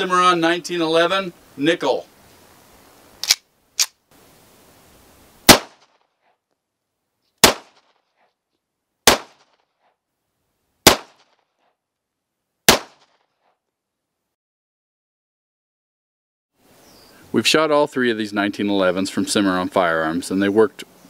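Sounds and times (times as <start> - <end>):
pistol shots with echo: 5.5 - 5.8, 7.4 - 7.8, 9.1 - 9.4, 10.8 - 11.2, 12.7 - 13.1.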